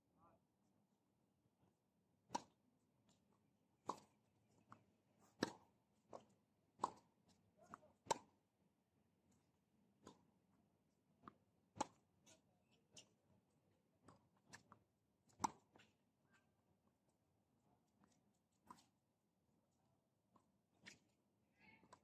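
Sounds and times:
tennis ball bouncing on hard court: 0:02.3 - 0:02.6, 0:03.8 - 0:07.1, 0:07.7 - 0:08.3, 0:11.2 - 0:12.0, 0:15.3 - 0:15.9
tennis ball hit by rackets: 0:02.3 - 0:02.6, 0:03.8 - 0:04.2, 0:05.3 - 0:07.1, 0:07.7 - 0:08.3, 0:11.8 - 0:12.0, 0:15.3 - 0:15.9.

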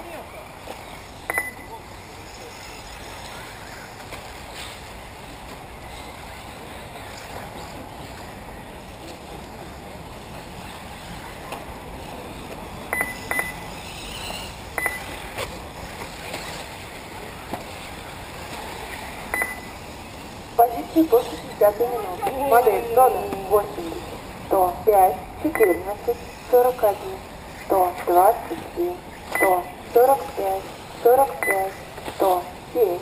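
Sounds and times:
rc car motors and tyres humming: 0:00.0 - 0:33.0
short high beeps: 0:01.3 - 0:01.7, 0:12.9 - 0:13.6, 0:14.8 - 0:15.1, 0:19.3 - 0:19.7, 0:25.5 - 0:26.0, 0:29.3 - 0:29.7, 0:31.3 - 0:31.8.

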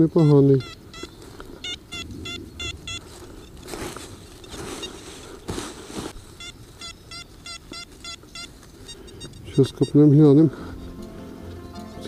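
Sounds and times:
metal detector high beeps: 0:00.0 - 0:03.7, 0:04.4 - 0:05.1, 0:06.4 - 0:10.9
dry leaves rustling: 0:02.8 - 0:08.9.

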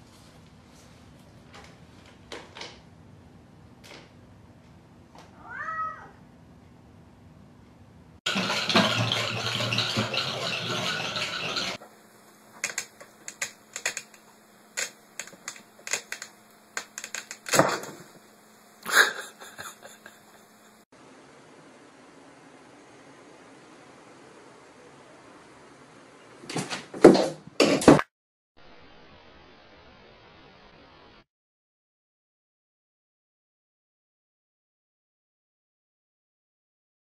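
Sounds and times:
cat meowing: 0:05.3 - 0:06.2.

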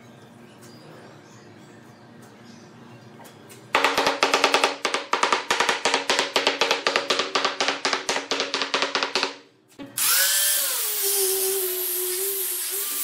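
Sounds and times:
hammer tapping on wood: 0:03.8 - 0:09.4.

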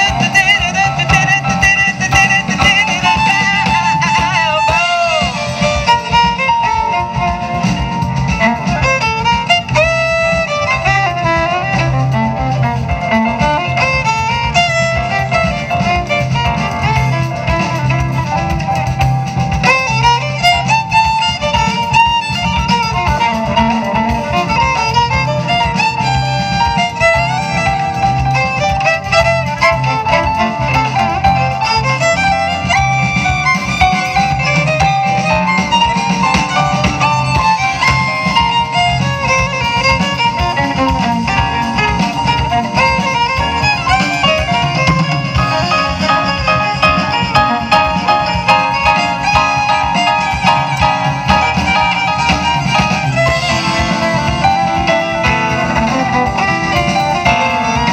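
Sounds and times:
jazz band playing: 0:00.0 - 0:57.9
violin melody: 0:00.0 - 0:57.9.

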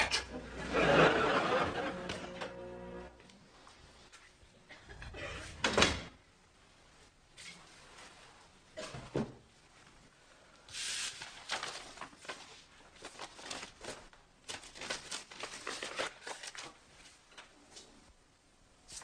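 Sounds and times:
rustling and crinkling: 0:11.0 - 0:18.1.

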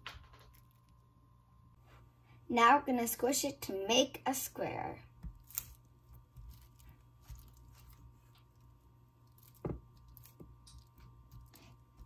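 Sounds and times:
plastic wrap crinkling: 0:05.4 - 0:11.6.

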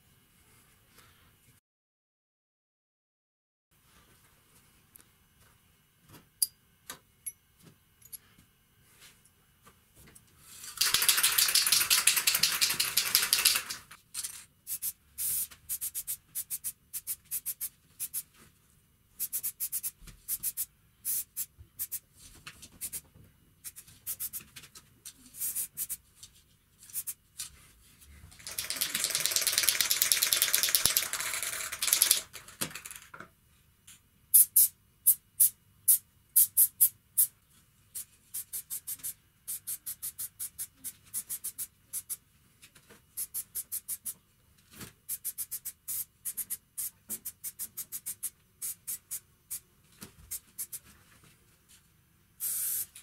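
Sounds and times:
aerosol spray can spraying: 0:10.7 - 0:13.8, 0:14.7 - 0:18.3, 0:19.2 - 0:22.0, 0:28.4 - 0:32.2, 0:38.0 - 0:42.2, 0:43.2 - 0:44.1, 0:45.1 - 0:49.6, 0:50.3 - 0:50.8, 0:52.4 - 0:53.0.

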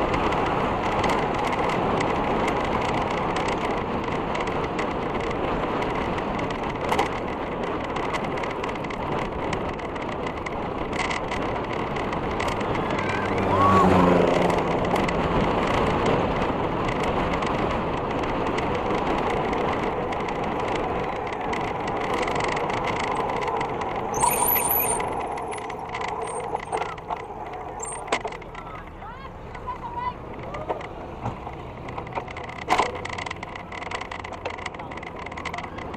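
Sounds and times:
knocks and clicks: 0:16.9 - 0:28.7
high-pitched squeal: 0:22.8 - 0:28.2.

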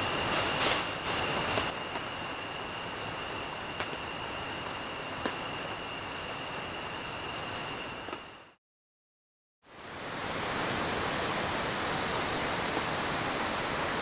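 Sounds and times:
insect shrill chirp: 0:00.0 - 0:08.1
insect steady high trill: 0:00.0 - 0:08.6.

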